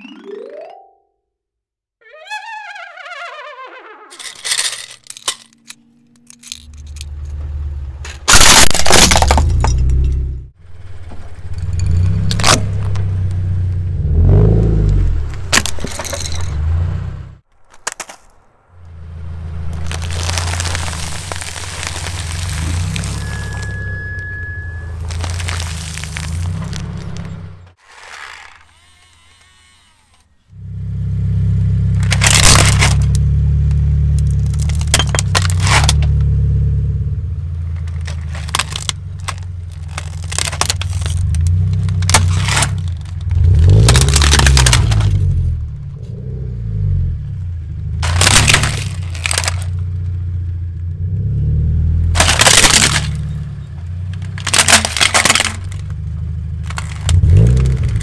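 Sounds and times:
car engine running at low revs: 0:05.8 - 0:17.5, 0:18.5 - 0:27.8, 0:30.5 - 0:58.0
plastic toy cracking and snapping: 0:32.0 - 0:33.2, 0:34.1 - 0:36.1, 0:37.8 - 0:45.2, 0:48.0 - 0:49.8, 0:52.2 - 0:53.4, 0:54.1 - 0:56.0, 0:56.6 - 0:58.0.

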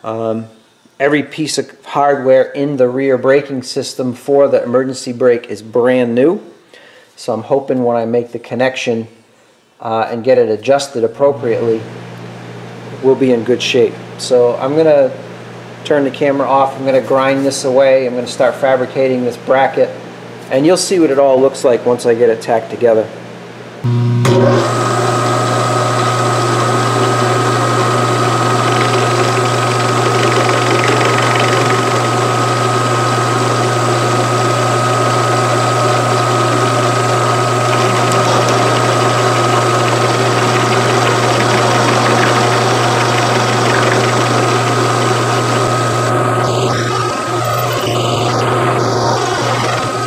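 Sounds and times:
milling machine cutting metal: 0:23.9 - 0:50.0.

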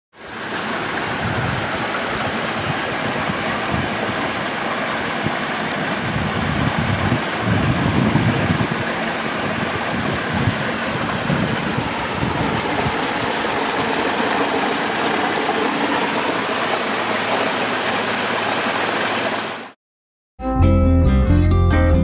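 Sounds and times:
water rushing along boat hull: 0:00.2 - 0:19.8.

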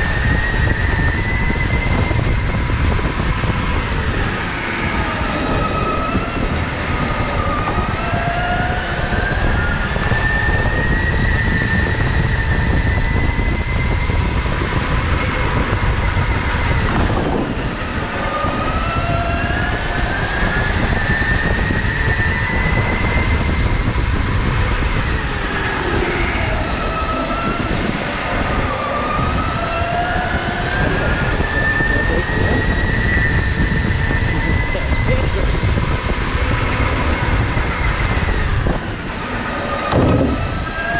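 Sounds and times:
electric motor whine: 0:00.0 - 0:40.9
tyres rumbling on concrete: 0:39.5 - 0:40.9.

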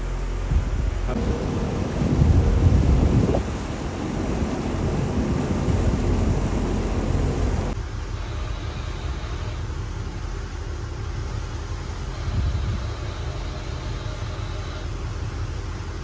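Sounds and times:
steady low rumble: 0:00.0 - 0:14.0
water noise from moving boat: 0:00.0 - 0:16.0
wind on microphone: 0:00.5 - 0:07.8, 0:12.2 - 0:13.0.

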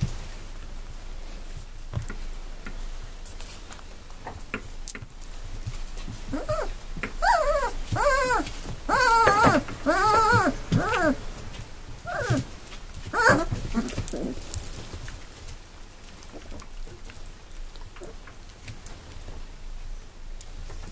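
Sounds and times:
puppies whining: 0:06.3 - 0:11.3, 0:12.0 - 0:12.5, 0:13.1 - 0:14.4.

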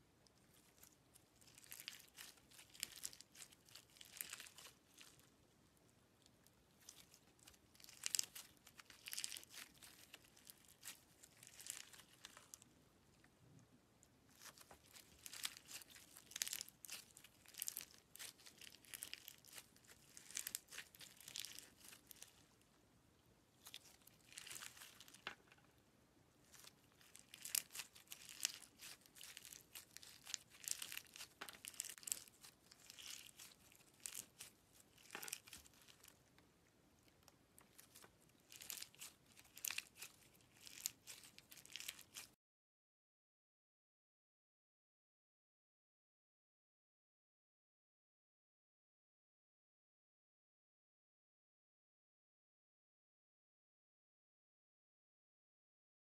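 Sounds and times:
slime squeezed crackling and popping: 0:00.4 - 0:05.3, 0:06.8 - 0:12.6, 0:14.3 - 0:22.6, 0:23.6 - 0:25.4, 0:26.4 - 0:36.3, 0:37.1 - 0:42.4.

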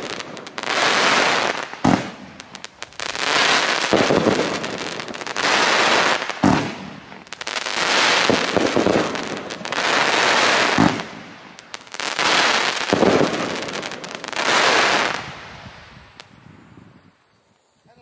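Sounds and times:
fireworks crackling: 0:00.0 - 0:18.0
firework launch thumps: 0:06.4 - 0:06.9.

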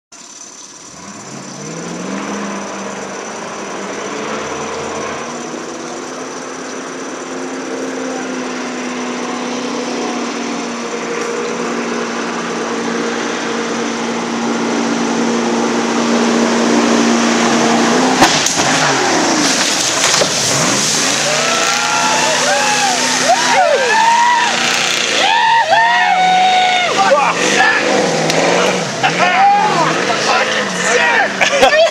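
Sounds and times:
boat engine droning: 0:00.2 - 0:31.9
rushing white water hiss: 0:12.8 - 0:25.6.

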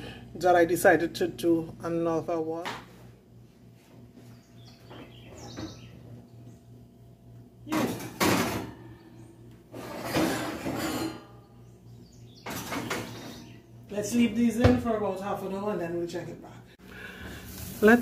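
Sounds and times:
baking dishes clattering on oven racks: 0:07.7 - 0:08.9, 0:09.7 - 0:11.4, 0:12.4 - 0:13.5.

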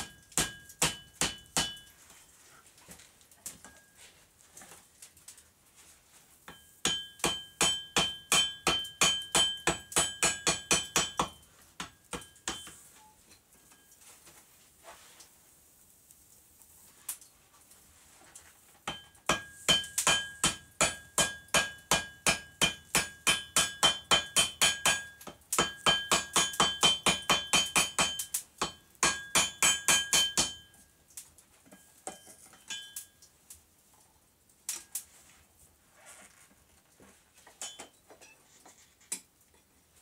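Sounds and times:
hammer striking anvil: 0:00.0 - 0:01.9, 0:06.5 - 0:12.8, 0:18.9 - 0:30.7.

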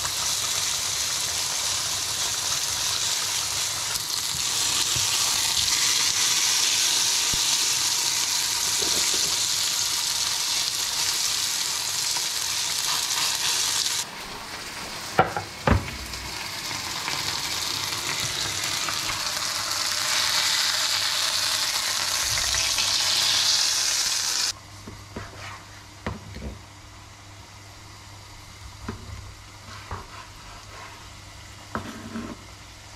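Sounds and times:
potatoes sizzling in hot oil: 0:00.0 - 0:14.1, 0:15.8 - 0:24.6.

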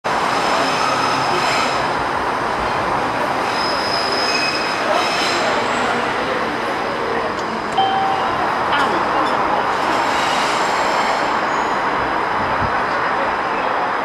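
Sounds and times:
train wheels squealing on rails: 0:00.3 - 0:02.0, 0:03.3 - 0:06.1, 0:09.2 - 0:12.2.

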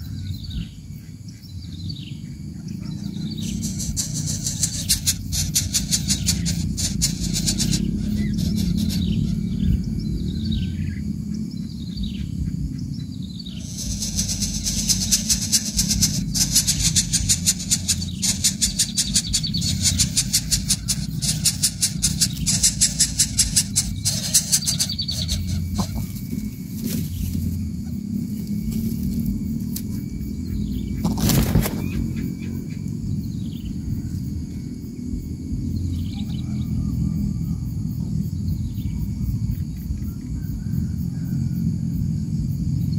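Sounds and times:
steady low rumble: 0:00.0 - 0:42.9
bird chick begging calls: 0:02.8 - 0:09.9, 0:13.5 - 0:26.2.

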